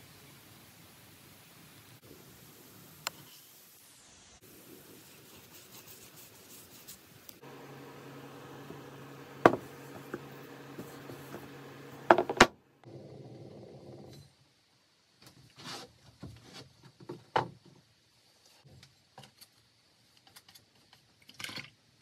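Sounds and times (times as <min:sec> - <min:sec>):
scraping and rubbing handling: 0:05.2 - 0:12.6
steady low hum: 0:07.4 - 0:13.0
wood blocks knocking on workbench: 0:08.6 - 0:12.6.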